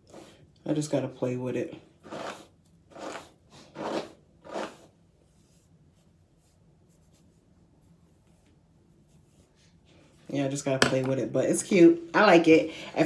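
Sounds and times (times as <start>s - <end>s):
hairbrush brushing a wig: 2.0s - 10.4s.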